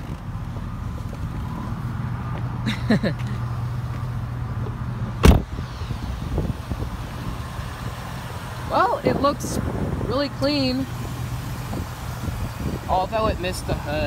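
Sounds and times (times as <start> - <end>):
car engine idling: 0.0 - 14.0
car door shutting: 5.2 - 6.0.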